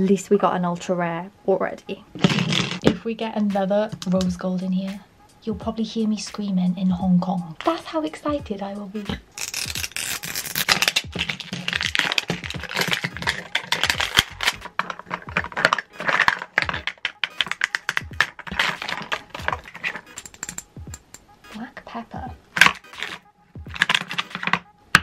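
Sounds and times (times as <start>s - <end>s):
plastic capsule crinkling and clicking: 9.1s - 21.2s, 22.5s - 25.0s.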